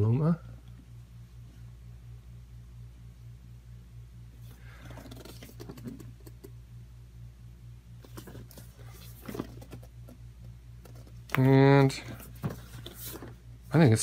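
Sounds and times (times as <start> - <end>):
steady low hum: 0.0 - 14.0
cardboard box handled: 8.1 - 9.9.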